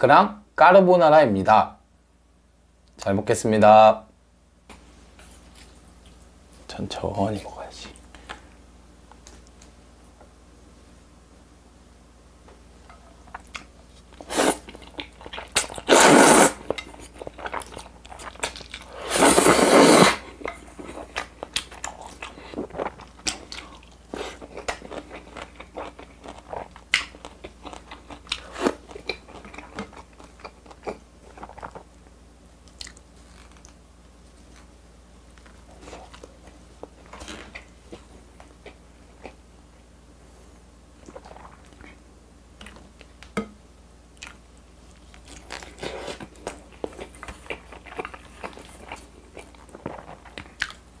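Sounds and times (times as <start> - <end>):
chewing with wet mouth clicks: 13.3 - 13.7, 20.4 - 31.9, 32.6 - 33.8, 42.6 - 43.4, 44.2 - 50.9
slurping noodles: 14.2 - 14.7, 15.8 - 16.7, 18.9 - 20.2.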